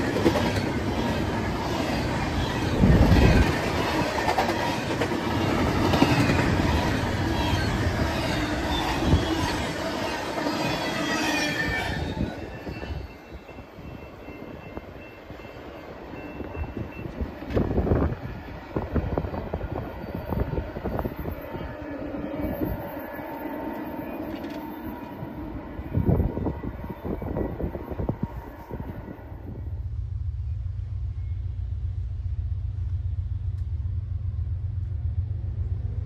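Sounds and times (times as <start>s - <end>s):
train cars clanking: 0.0s - 21.4s
train wheel squeal: 0.0s - 29.8s
train rumble: 0.0s - 36.0s.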